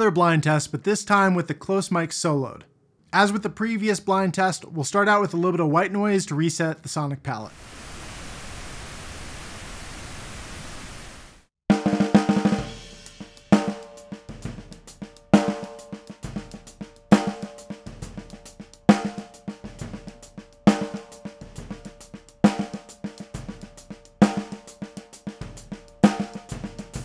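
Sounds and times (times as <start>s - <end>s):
drum kit groove: 11.7s - 27.0s
snare drum backbeat: 11.7s - 27.0s.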